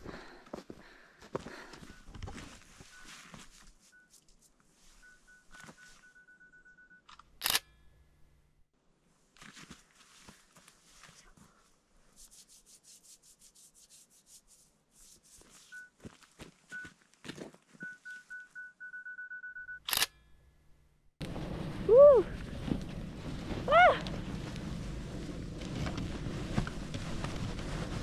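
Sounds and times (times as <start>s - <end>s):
rustling and shuffling: 0.0s - 6.5s, 9.1s - 18.9s, 21.2s - 28.0s
camera self-timer beeping: 6.0s - 7.9s, 17.8s - 20.3s
camera shutter click: 7.1s - 7.7s, 19.9s - 20.2s.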